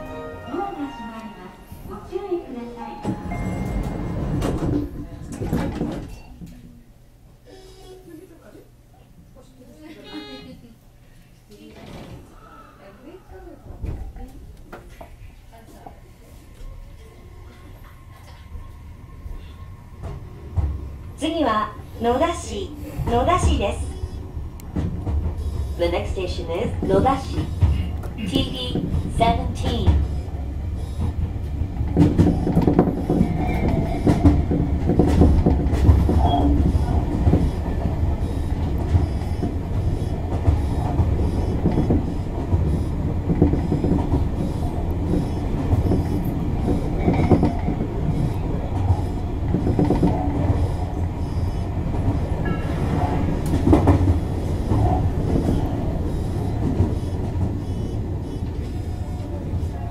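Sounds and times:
train rumble from inside carriage: 0.0 - 7.1, 13.4 - 59.9
wheels clattering over rails: 3.0 - 6.2, 22.1 - 59.7.

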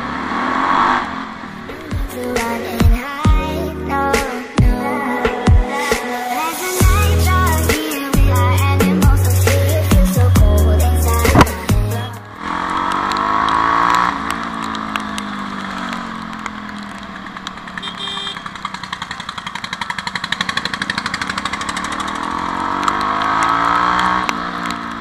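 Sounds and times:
motorcycle engine pulsing exhaust: 6.8 - 25.0.

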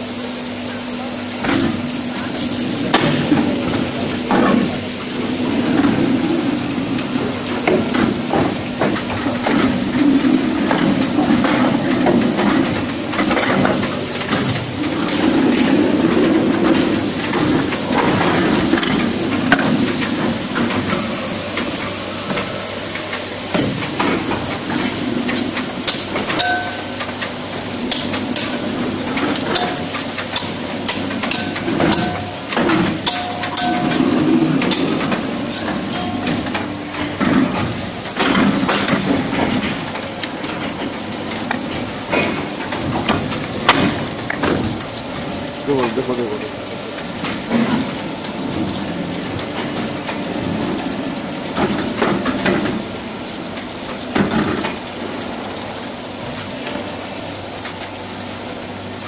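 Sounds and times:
machine hiss and hum: 0.0 - 59.0
metal moulds knocking and clanking: 27.9 - 40.8.

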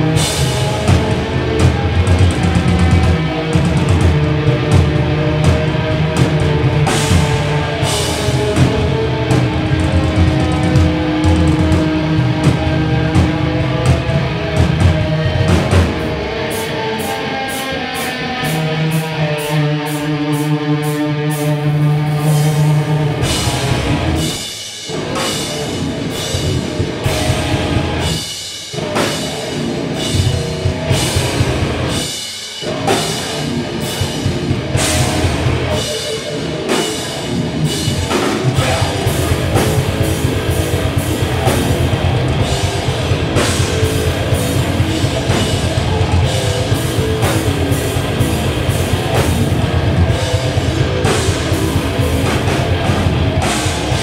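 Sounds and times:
heavy rock band playing: 0.0 - 54.0.

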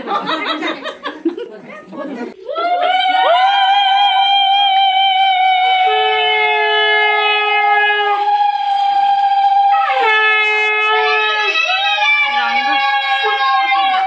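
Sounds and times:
conch shells blown: 4.0 - 14.0.

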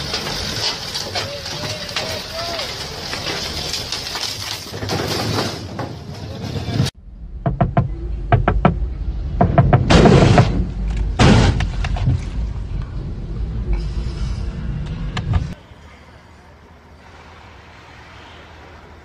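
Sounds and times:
car cabin low rumble: 7.0 - 15.6
knocks and clicks: 7.4 - 12.3.

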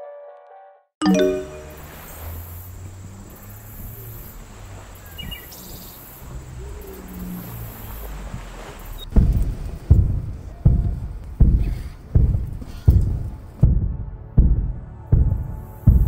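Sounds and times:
short chord-like tone: 1.0 - 1.9.

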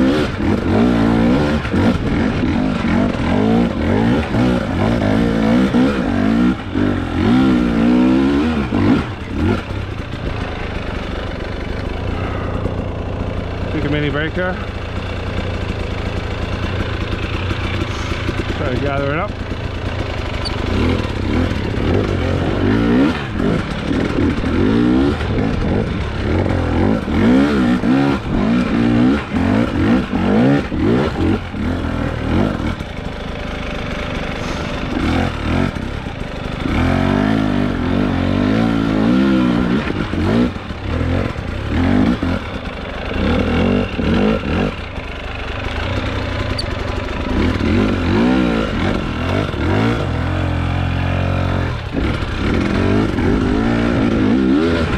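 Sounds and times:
motorcycle engine revving: 0.0 - 54.9.

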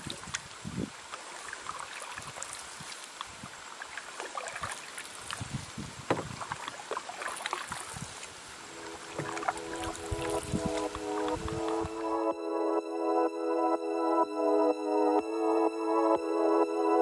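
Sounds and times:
water dripping from paddle: 0.0 - 12.1
paddle strokes in water: 0.0 - 12.2
soft knocks: 6.1 - 6.4.

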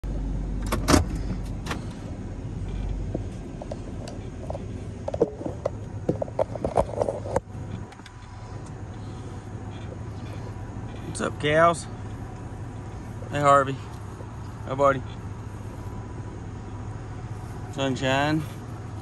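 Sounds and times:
truck engine rumble: 0.0 - 19.0
sharp knocks and clicks: 2.7 - 8.8.

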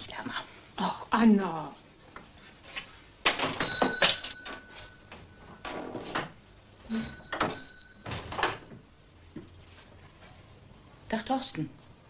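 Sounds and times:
small door bell ringing: 3.5 - 5.6, 6.9 - 8.6.

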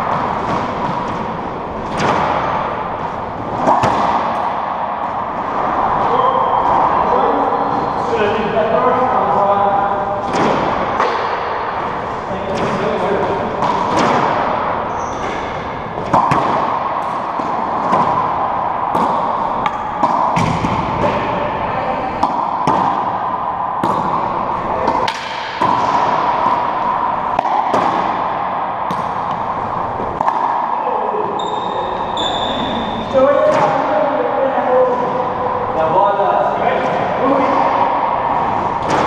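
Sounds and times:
racquetball hitting racquets and walls: 0.0 - 39.0
short high squeak: 31.4 - 33.0.

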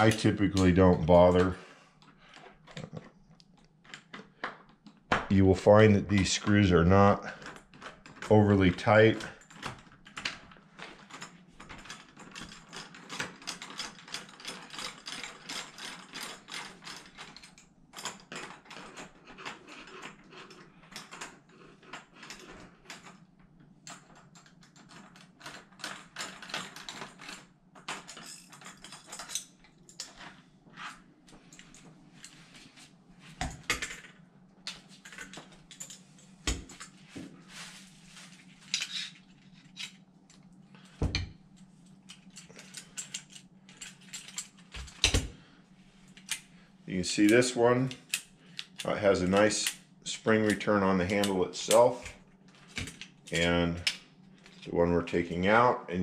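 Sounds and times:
faint steady hum: 0.0 - 56.0
metal parts clicking and knocking: 7.2 - 30.4, 33.4 - 37.0, 38.6 - 45.3.

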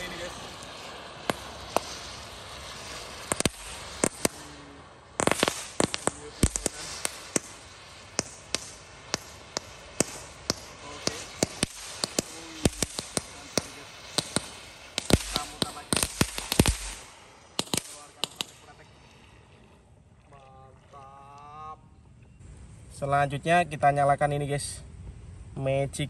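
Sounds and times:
firework crackling pops: 0.0 - 18.9
firework fountain hissing: 0.0 - 20.2.

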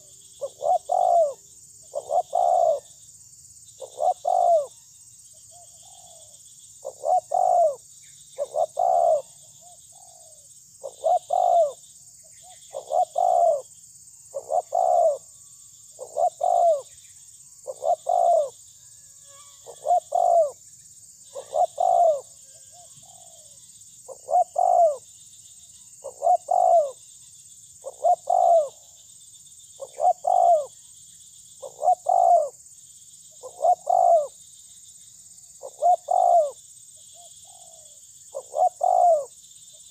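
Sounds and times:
dove cooing: 0.0 - 2.9, 3.8 - 4.7, 5.5 - 7.8, 8.4 - 11.8, 12.5 - 13.7, 14.3 - 15.3, 16.0 - 16.9, 17.6 - 18.6, 19.6 - 20.6, 21.3 - 25.0, 26.0 - 27.0, 27.8 - 28.9, 29.8 - 30.7, 31.6 - 32.6, 33.4 - 34.4, 35.6 - 36.6, 37.2 - 39.3.

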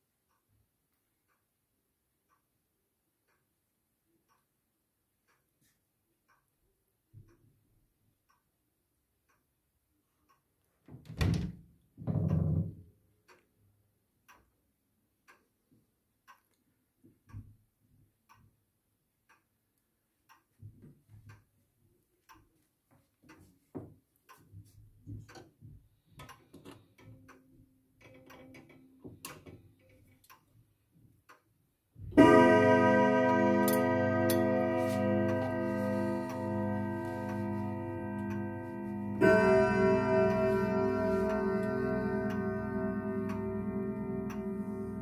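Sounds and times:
grandfather clock ticking: 25.2 - 30.6, 31.2 - 45.0.

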